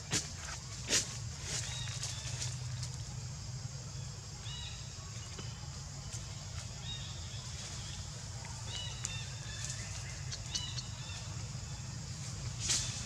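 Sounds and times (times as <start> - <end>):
rustles and clicks in dry leaves: 0.0 - 3.2, 8.6 - 11.3, 12.1 - 13.0
steady low hum: 0.0 - 13.0.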